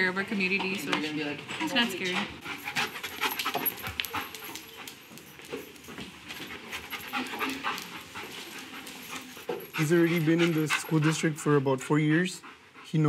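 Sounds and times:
dog panting: 1.6s - 13.0s
dog sniffing rapidly: 2.0s - 4.6s, 6.5s - 11.6s.

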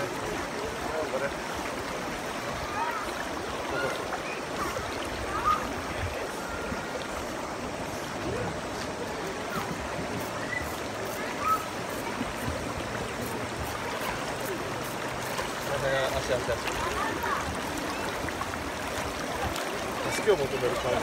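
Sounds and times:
river water rushing and babbling: 0.0s - 21.0s
dog paddling splashes: 7.8s - 21.0s.

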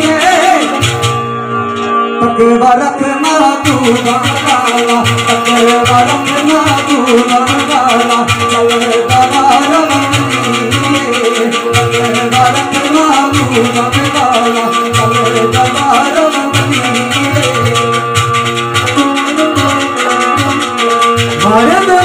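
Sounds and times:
shaker rattle: 0.0s - 1.2s, 3.5s - 22.0s
low rhythmic beat: 0.0s - 2.1s, 3.2s - 22.0s
man singing amplified: 0.0s - 22.0s
plucked string instrument: 0.0s - 22.0s.

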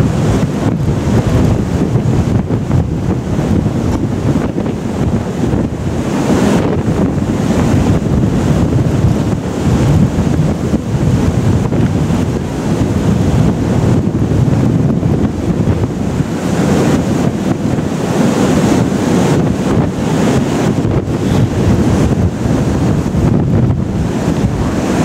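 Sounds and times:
whitewater rushing along a hull: 0.0s - 25.0s
wind buffeting the microphone: 0.0s - 25.0s.

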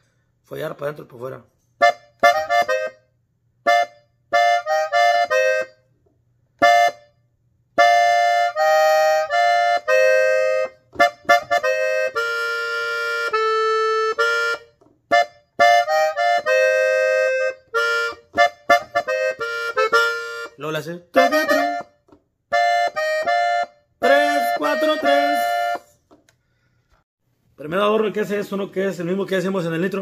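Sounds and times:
button accordion playing: 1.8s - 5.9s, 6.6s - 26.0s.

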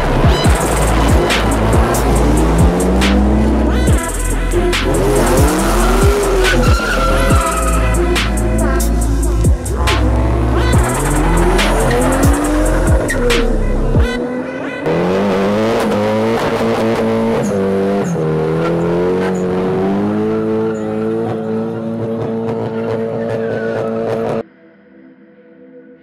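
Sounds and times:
car engine revving: 0.0s - 24.4s
heavy bass music: 0.0s - 24.4s
tyres squealing: 0.3s - 13.4s.

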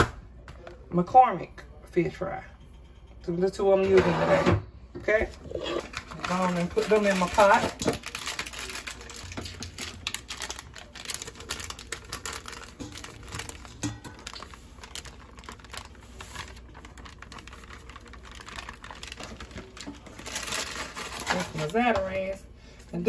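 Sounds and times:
plastic bag crinkling: 5.3s - 22.4s.

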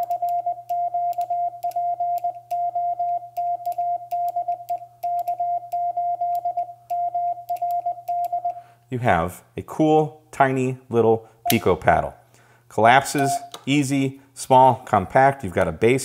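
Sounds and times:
morse code tone: 0.0s - 8.6s.

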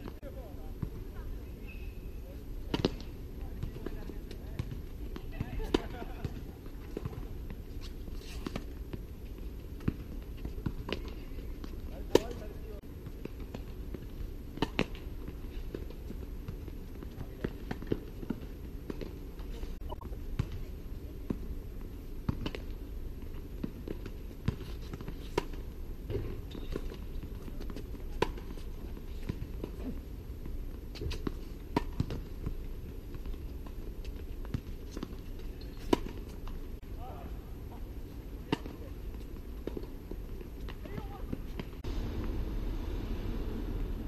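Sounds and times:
racquets striking tennis ball: 9.8s - 12.6s, 13.2s - 15.1s, 30.9s - 32.4s.

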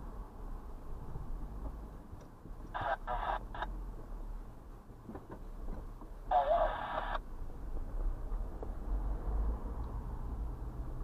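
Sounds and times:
radio scanner transmissions: 2.7s - 3.7s, 6.3s - 7.2s.

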